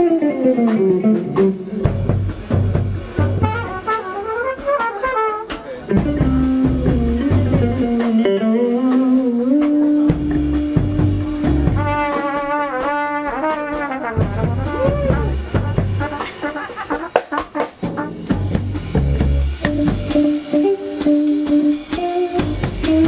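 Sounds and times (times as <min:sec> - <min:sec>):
electric guitar: 0:00.0 - 0:23.0
walking bass: 0:00.0 - 0:23.0
trumpet: 0:03.0 - 0:23.0.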